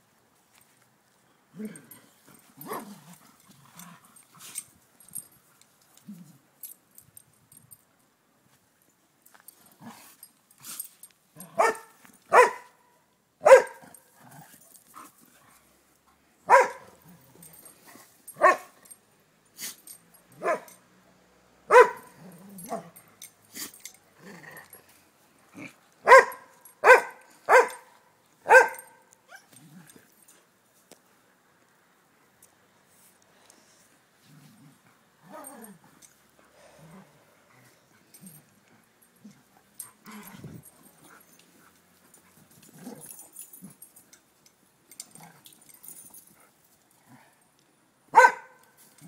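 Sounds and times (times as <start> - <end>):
dog barking: 11.6 - 12.8, 13.4 - 13.8, 16.5 - 17.0, 18.4 - 18.7, 20.4 - 20.8, 21.7 - 22.9, 26.0 - 27.9, 28.5 - 29.0, 48.1 - 48.6.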